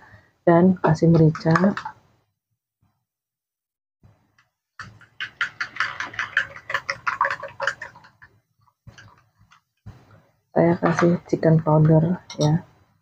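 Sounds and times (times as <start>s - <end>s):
fork beating eggs in bowl: 4.8s - 9.7s.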